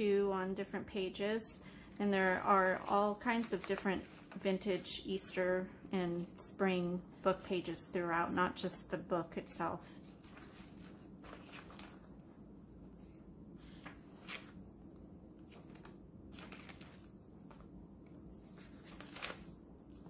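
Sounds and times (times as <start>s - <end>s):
low steady hum: 0.0s - 20.0s
paper pages turning: 2.7s - 4.9s, 10.0s - 12.3s, 12.9s - 20.0s.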